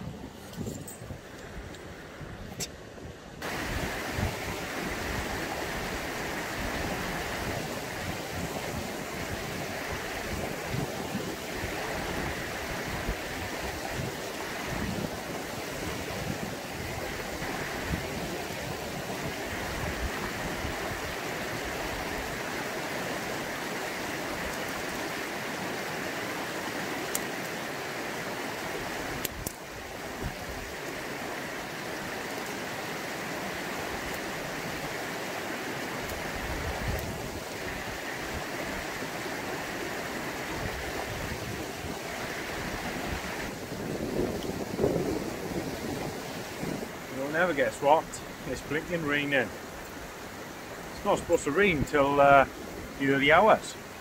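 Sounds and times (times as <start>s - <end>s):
mountain stream rushing: 0.0s - 54.0s.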